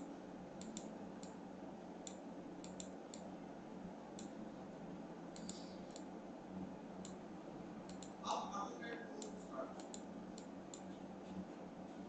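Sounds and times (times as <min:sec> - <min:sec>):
microphone hiss and hum: 0:00.0 - 0:12.0
computer mouse clicking: 0:00.6 - 0:01.4, 0:02.0 - 0:03.3, 0:04.1 - 0:04.4, 0:05.3 - 0:06.1, 0:07.0 - 0:07.2, 0:07.9 - 0:08.2, 0:09.2 - 0:11.0.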